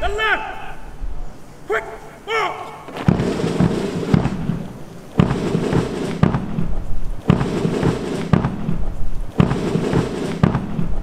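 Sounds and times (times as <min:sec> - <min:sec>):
heavy booming hits: 0:02.9 - 0:11.0.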